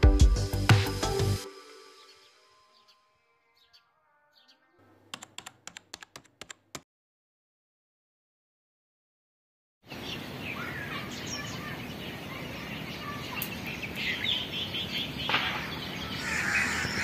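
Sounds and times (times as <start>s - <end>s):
wild birds chirping: 1.9s - 5.1s, 9.8s - 17.0s
outdoor background hiss: 9.9s - 16.4s.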